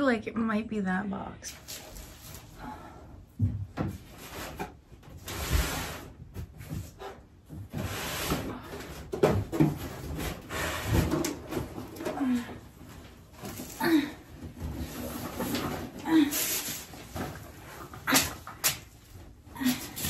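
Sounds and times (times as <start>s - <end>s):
rummaging through boxes: 3.4s - 20.0s.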